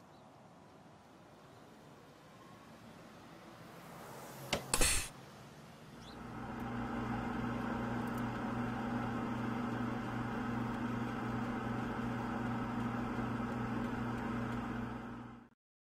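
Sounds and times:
freezer fans humming and whirring: 0:06.0 - 0:15.5.

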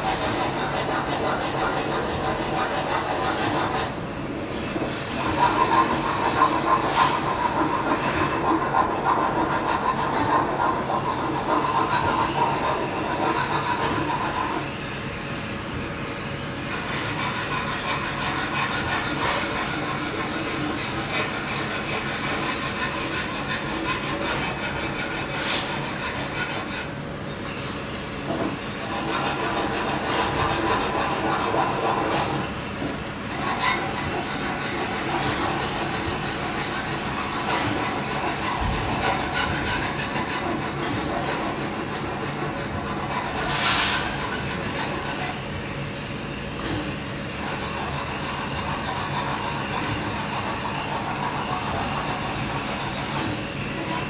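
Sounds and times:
welding hiss and crackle: 0:00.0 - 0:54.0.

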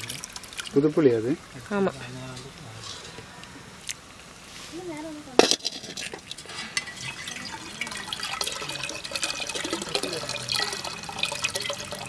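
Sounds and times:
water splashing into pot: 0:00.0 - 0:00.9, 0:05.4 - 0:12.0.

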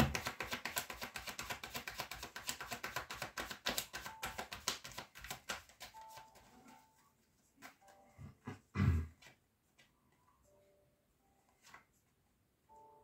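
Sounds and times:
cards being shuffled: 0:00.0 - 0:06.5.

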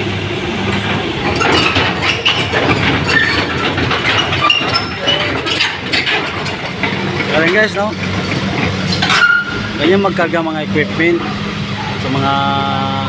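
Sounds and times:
crawler tracks clanking and squealing: 0:00.0 - 0:12.7
diesel engine humming: 0:00.0 - 0:13.0.

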